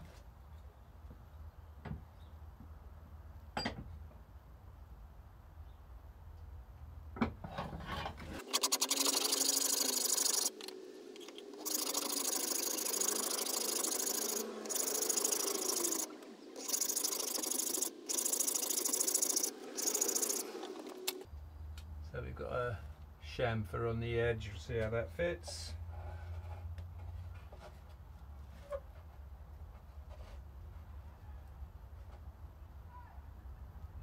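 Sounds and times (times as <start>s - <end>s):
hand file scraping wood: 11.6s - 21.2s.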